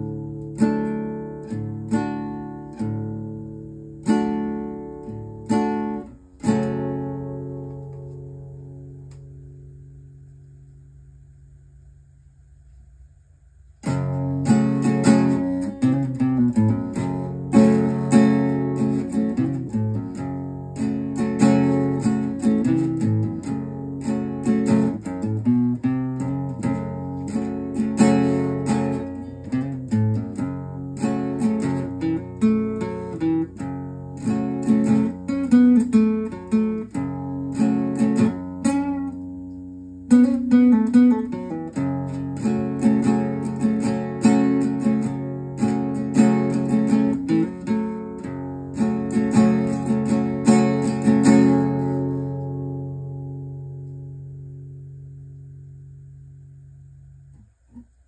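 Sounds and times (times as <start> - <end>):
acoustic guitar strumming: 0.0 - 11.1, 13.6 - 58.0.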